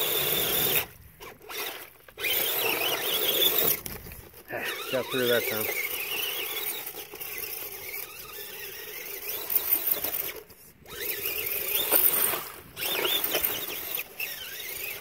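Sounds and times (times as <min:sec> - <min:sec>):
electric motor and drivetrain whining: 0:00.0 - 0:15.0.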